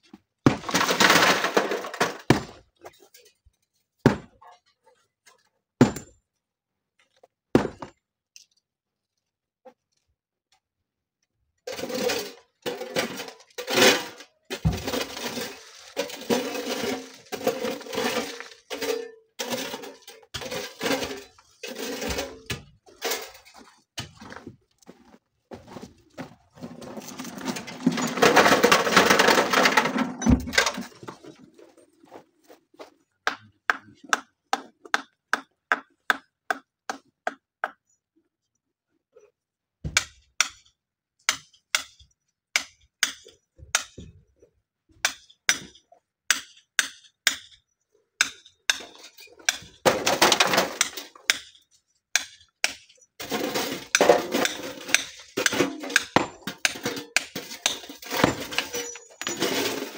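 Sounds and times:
loose stones clattering: 0:11.7 - 0:24.3, 0:26.6 - 0:32.2, 0:53.2 - 0:59.9.

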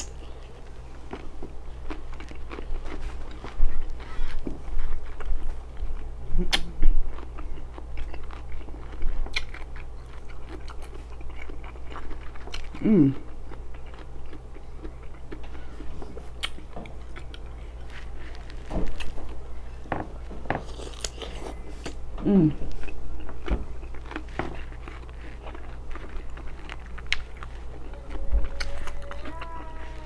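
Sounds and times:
crunching and chewing: 0:00.0 - 0:22.0, 0:22.7 - 0:30.0
steady low hum: 0:00.0 - 0:30.0
person humming: 0:12.8 - 0:13.2, 0:22.2 - 0:22.7, 0:27.8 - 0:30.0
wet mouth clicks and smacks: 0:16.4 - 0:16.6.

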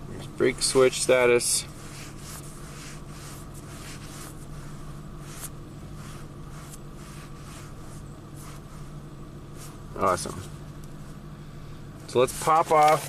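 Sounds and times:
low hum in truck cab: 0:00.0 - 0:13.0
finger brushing touchscreen: 0:01.8 - 0:09.8.

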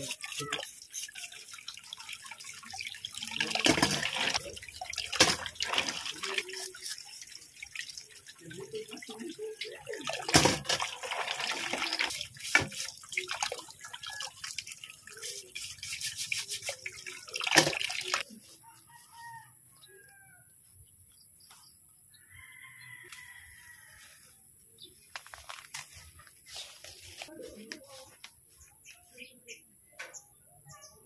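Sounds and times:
brush scrubbing snails: 0:00.0 - 0:02.7, 0:03.7 - 0:18.6, 0:25.4 - 0:28.2
tap water splashing into basin: 0:01.5 - 0:06.6, 0:07.5 - 0:15.3, 0:16.8 - 0:18.2.

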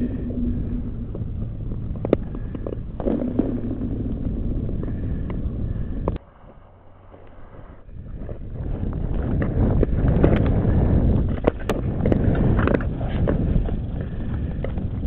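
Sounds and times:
skates scraping over ice: 0:09.3 - 0:15.0
skates clicking against ice: 0:11.2 - 0:15.0.

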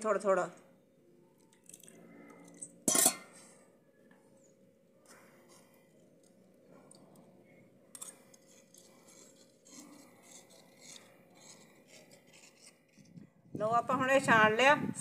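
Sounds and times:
light metal clink: 0:01.6 - 0:03.4
spoon scraping metal mesh strainer: 0:02.4 - 0:03.5, 0:08.0 - 0:13.1.

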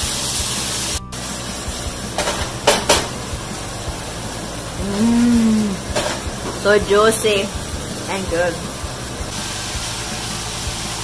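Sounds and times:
steady hiss: 0:00.0 - 0:11.0
woman humming mmm: 0:04.8 - 0:05.9.

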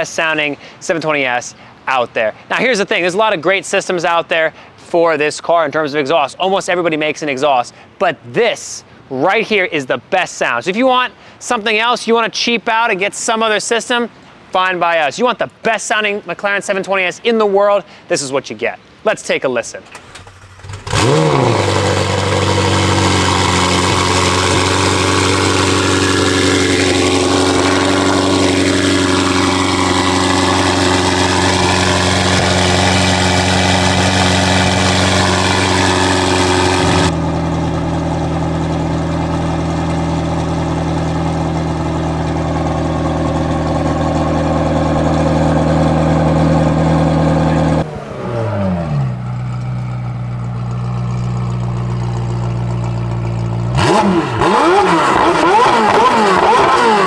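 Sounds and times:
car engine idling loudly: 0:20.3 - 0:47.9, 0:48.8 - 0:57.0.

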